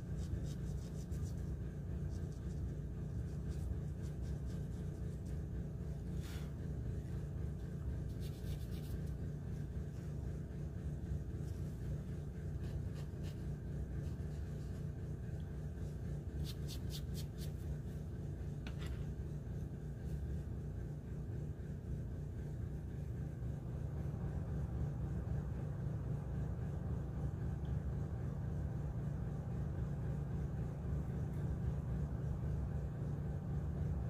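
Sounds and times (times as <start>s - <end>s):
pencil scratching on paper: 0.0s - 6.6s, 7.4s - 10.2s, 11.4s - 15.0s
steady low hum: 0.0s - 34.0s.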